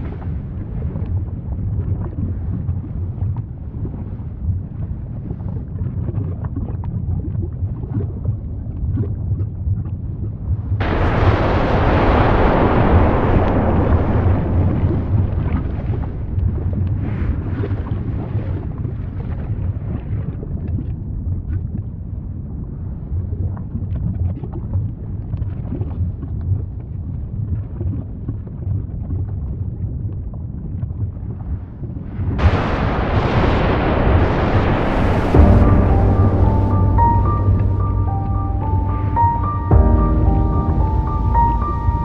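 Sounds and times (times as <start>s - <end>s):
loud rushing surge: 10.8s - 18.3s, 32.4s - 42.0s
volcanic eruption rumble: 10.8s - 19.8s, 32.0s - 42.0s
crackles: 10.8s - 20.0s, 32.1s - 42.0s.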